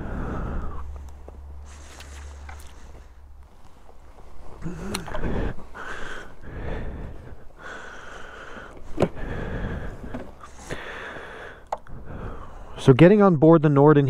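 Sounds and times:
clothing rustle: 1.0s - 7.6s.

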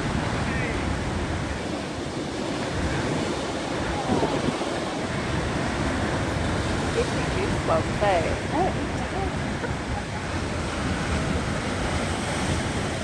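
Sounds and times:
heavy surf crashing on rocks: 0.0s - 13.0s.

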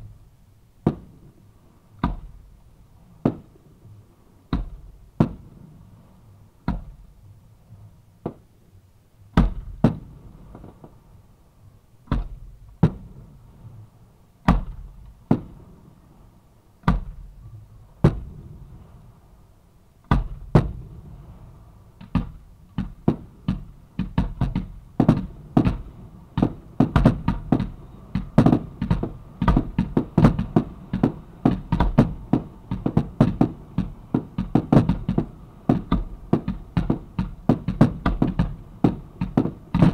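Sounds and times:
fireworks bangs: 3.2s - 3.5s, 4.6s - 5.5s, 9.4s - 11.0s, 18.0s - 18.8s, 20.1s - 21.2s, 22.0s - 39.9s.

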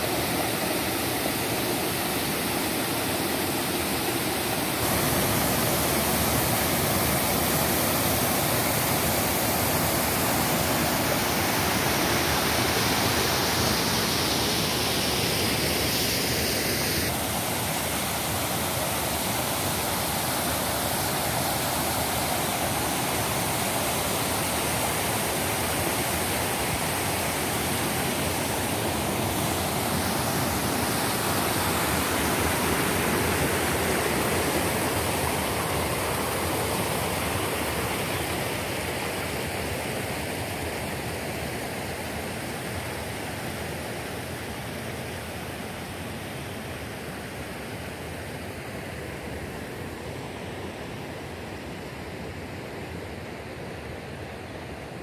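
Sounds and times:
water cascading over stone ledge: 0.0s - 42.0s.

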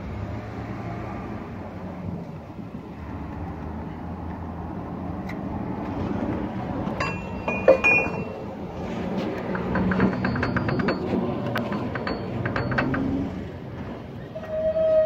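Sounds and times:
metal tools clinking: 7.0s - 8.4s, 9.5s - 13.4s.

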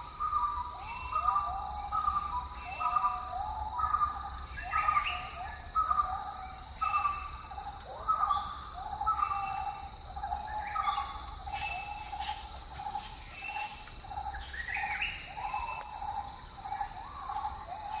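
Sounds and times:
birds whistling: 0.0s - 18.0s.

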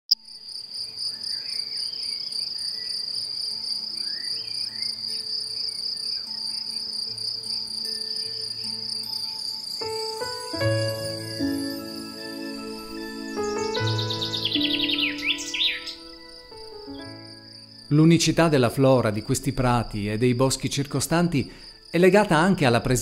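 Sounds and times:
high-pitched insect trill: 0.2s - 23.0s
faint bird chirps: 0.8s - 9.9s, 12.8s - 17.2s.

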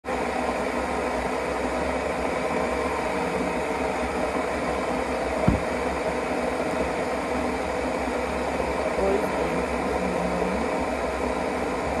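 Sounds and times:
mechanical hum: 0.1s - 12.0s.

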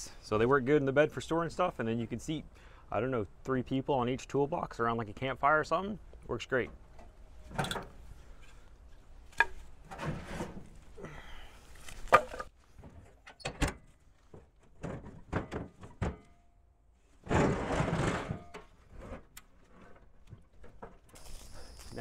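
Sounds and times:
metal toolbox thunks and knocks: 7.5s - 8.0s, 9.4s - 10.8s, 12.1s - 16.6s, 17.2s - 18.8s
metal box scraping across truck bed: 9.8s - 10.9s, 17.2s - 20.2s.

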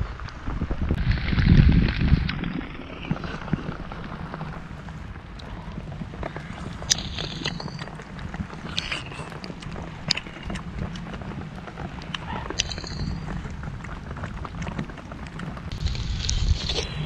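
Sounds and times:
wind rumble on microphone: 0.0s - 17.0s
wet chewing and lip-smacking: 5.3s - 17.0s.

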